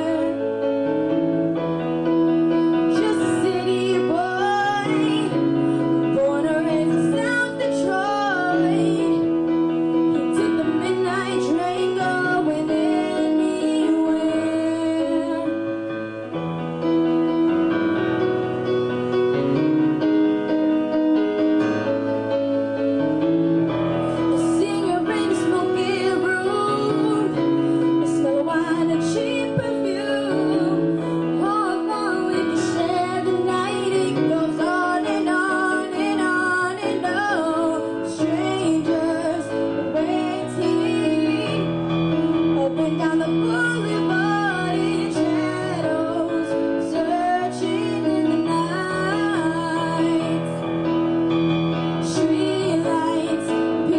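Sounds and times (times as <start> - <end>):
girl singing into microphone: 0.0 - 0.5, 2.9 - 9.4, 10.2 - 15.7, 24.3 - 41.8, 42.6 - 50.6, 52.0 - 53.9
piano backing track: 0.0 - 53.9.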